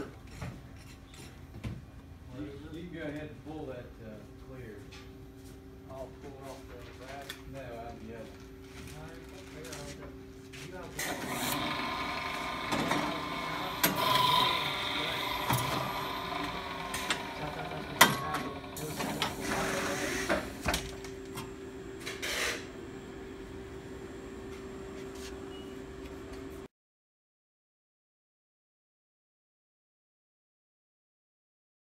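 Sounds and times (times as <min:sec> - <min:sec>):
cutting machine motor hum: 0:11.0 - 0:21.3
machine clattering and knocking: 0:12.0 - 0:19.5.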